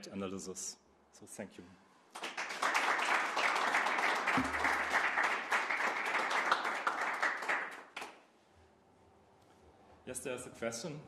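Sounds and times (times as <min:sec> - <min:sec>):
audience applauding: 0:02.1 - 0:08.2.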